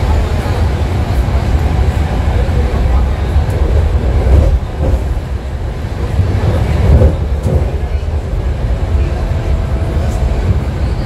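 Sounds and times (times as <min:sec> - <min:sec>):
train rumble from inside: 0:00.0 - 0:11.0.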